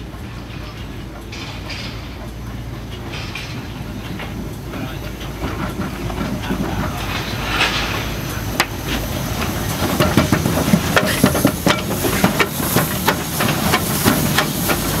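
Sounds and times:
steam hissing: 0.0 - 15.0
steam locomotive rumble: 0.0 - 15.0.

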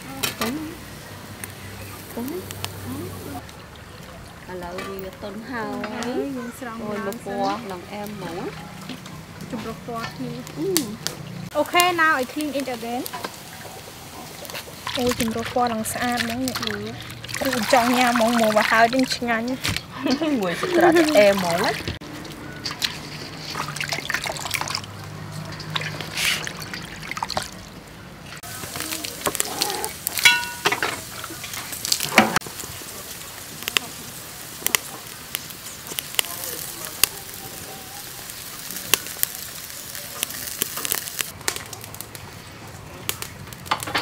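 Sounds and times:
sausages sizzling on grill: 0.0 - 3.7, 4.5 - 44.0
fire crackling and popping: 0.0 - 44.0
water dripping from colander: 14.4 - 27.8, 28.4 - 37.0.

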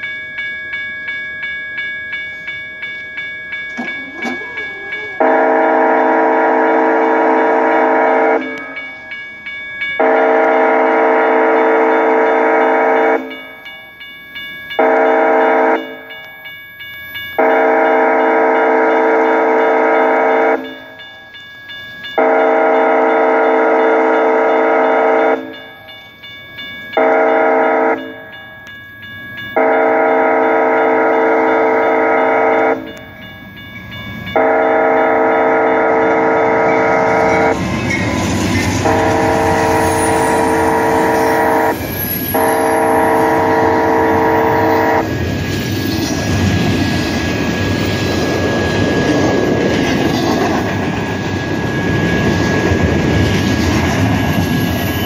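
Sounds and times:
train wheels clattering on rails: 3.5 - 5.6, 29.4 - 55.0
locomotive air horn: 5.0 - 8.8, 10.0 - 13.2, 14.8 - 16.0, 17.4 - 20.7, 22.2 - 25.5, 27.0 - 28.0, 29.6 - 32.9, 34.4 - 37.5, 38.8 - 45.1.

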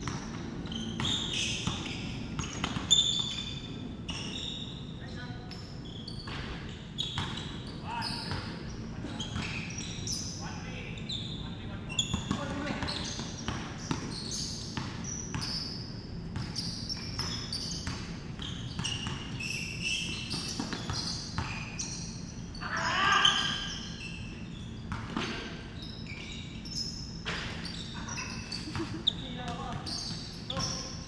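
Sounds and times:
sneakers squeaking: 0.0 - 31.0
basketball bouncing on wooden floor: 12.1 - 15.6, 17.2 - 19.3.

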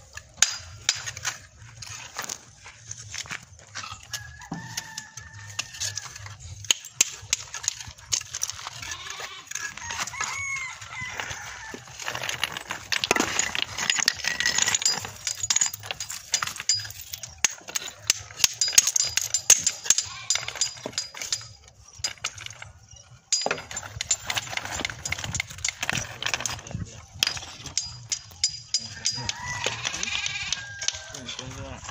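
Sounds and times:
rough scraping: 0.0 - 31.9
rooster crowing: 4.0 - 6.4, 9.6 - 12.4, 28.9 - 31.7.

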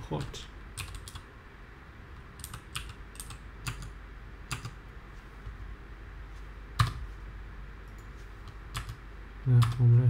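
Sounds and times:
computer keyboard keystrokes: 0.2 - 1.2, 2.4 - 4.8, 8.7 - 9.0.

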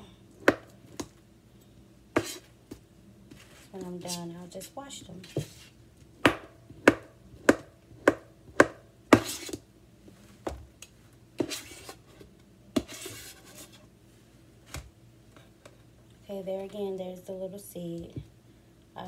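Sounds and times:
knife chopping on plastic board: 0.4 - 1.1, 2.2 - 2.4, 6.2 - 9.6
knife scraping board: 2.2 - 2.5, 9.1 - 9.6, 11.4 - 12.2, 12.8 - 13.8.

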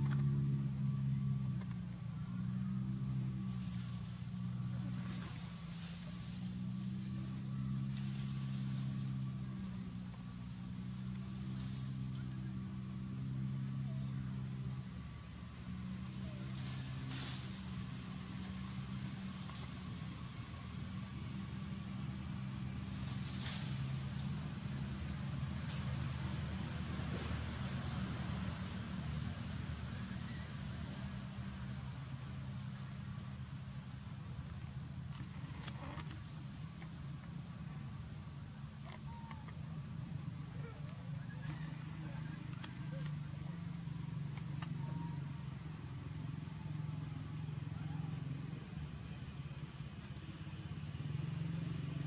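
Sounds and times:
low engine hum: 0.0 - 52.0
faint chirp: 0.8 - 6.1, 29.8 - 30.7.

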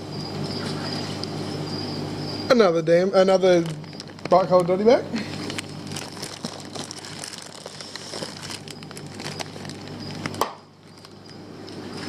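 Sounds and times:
steady low hum: 0.0 - 12.0
plastic bags crinkling: 3.4 - 11.4.

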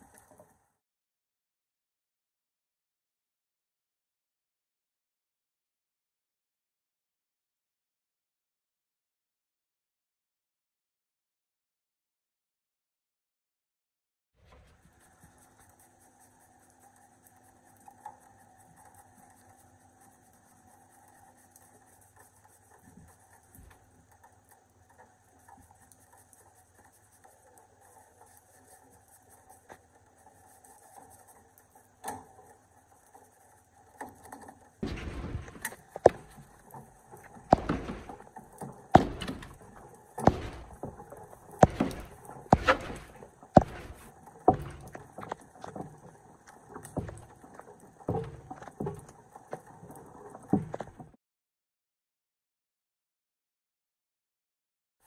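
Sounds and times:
paintbrush scrubbing plastic: 14.4 - 51.1.

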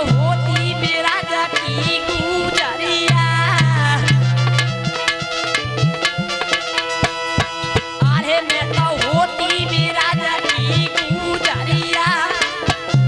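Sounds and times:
person singing: 0.0 - 4.3, 8.0 - 12.9
harmonium chords: 0.0 - 13.0
hand drum beat: 1.6 - 13.0.

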